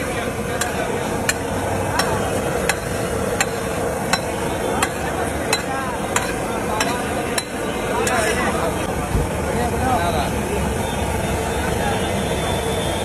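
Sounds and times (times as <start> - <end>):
street hum: 0.0 - 13.0
metal spatula on griddle: 0.5 - 8.5.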